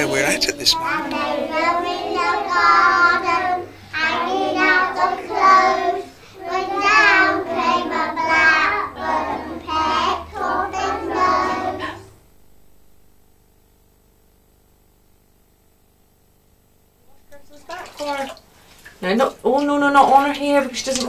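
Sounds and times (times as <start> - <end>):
child singing: 0.0 - 12.0.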